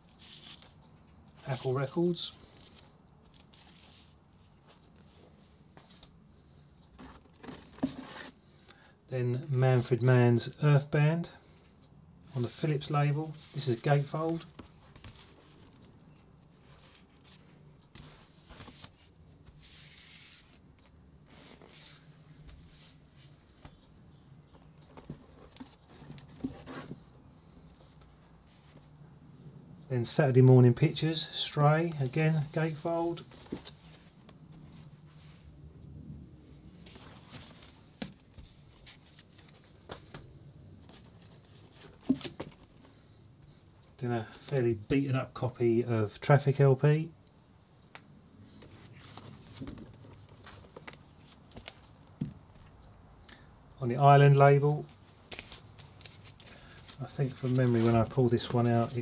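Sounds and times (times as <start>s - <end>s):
cardboard sleeves rustling: 0.0s - 8.5s, 12.3s - 28.9s, 31.8s - 35.6s, 36.7s - 43.2s, 48.5s - 52.7s, 54.8s - 59.0s
cardboard sleeve rubbing and scraping: 16.8s - 20.6s.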